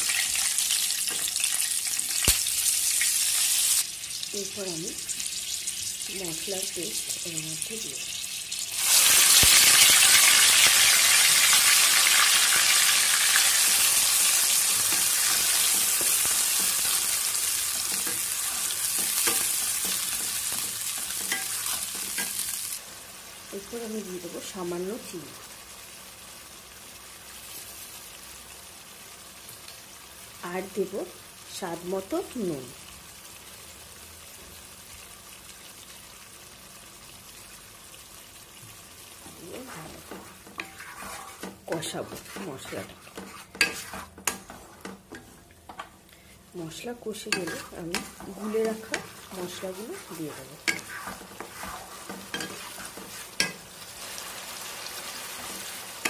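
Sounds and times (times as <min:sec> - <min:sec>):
spice paste sizzling in oil: 0:00.0 - 0:56.0
spatula scraping: 0:13.6 - 0:22.5, 0:39.7 - 0:46.3, 0:47.2 - 0:53.6.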